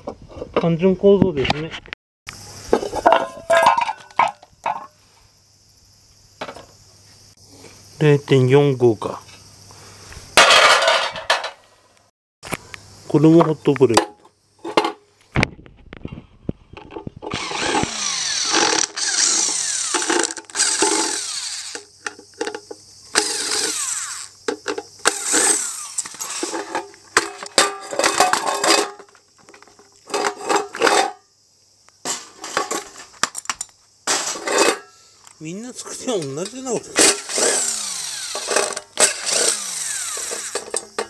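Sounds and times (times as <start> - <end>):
power driver spinning: 17.3 - 21.9, 23.2 - 24.4, 25.0 - 26.9, 37.1 - 41.0
screws rattling: 17.3 - 21.9, 23.2 - 24.4, 25.0 - 29.0, 36.3 - 41.0.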